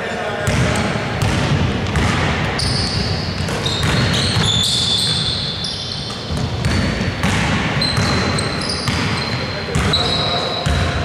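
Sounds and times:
basketball bouncing: 0.4s - 11.0s
sneaker squeaks: 2.6s - 11.0s.

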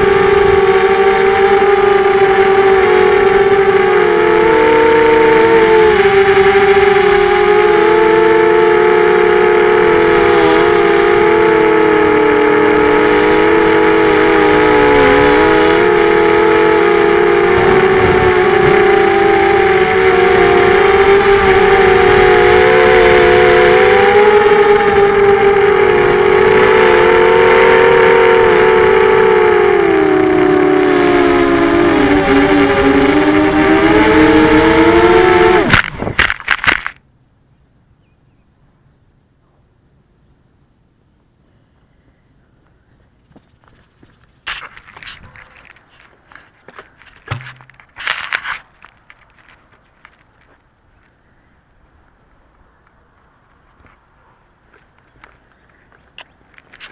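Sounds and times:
quadcopter motors whining: 0.0s - 37.0s, 44.4s - 50.6s, 55.9s - 56.9s
drone crashing into grass: 34.4s - 37.0s, 47.0s - 49.2s.

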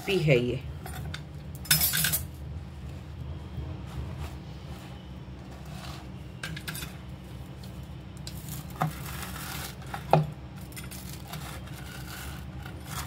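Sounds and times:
knife sawing through crunchy bread: 3.9s - 6.2s, 8.4s - 10.2s, 10.8s - 13.0s.

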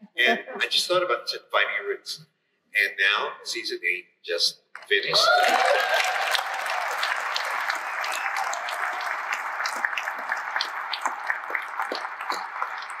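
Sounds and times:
audience applauding: 5.1s - 13.0s.

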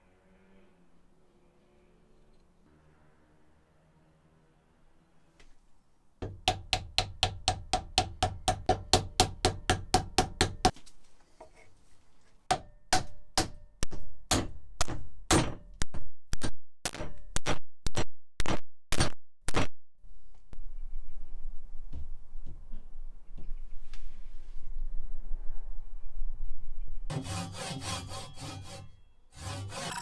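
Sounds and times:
hammer tapping wooden wedge: 6.2s - 10.8s.

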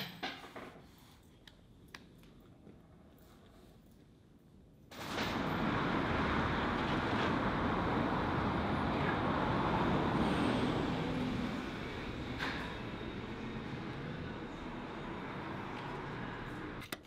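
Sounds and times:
road traffic rushing: 4.9s - 16.8s.

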